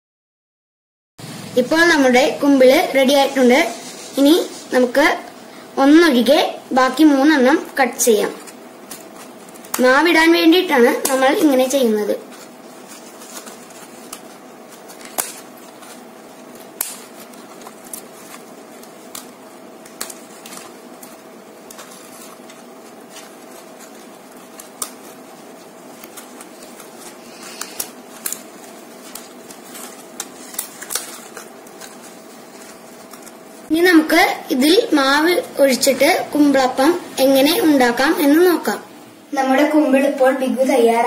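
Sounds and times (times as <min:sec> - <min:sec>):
steady background hum: 0:01.2 - 0:41.0
scissors snipping leaves: 0:08.2 - 0:33.4.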